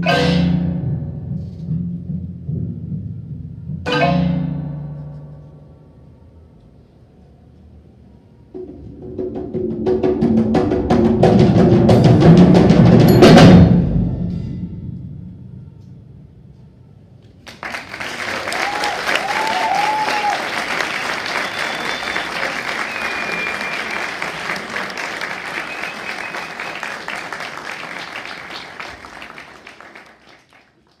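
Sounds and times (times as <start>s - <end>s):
audience applause: 17.4s - 31.0s
whoops and whistles: 18.5s - 24.4s, 25.5s - 26.9s.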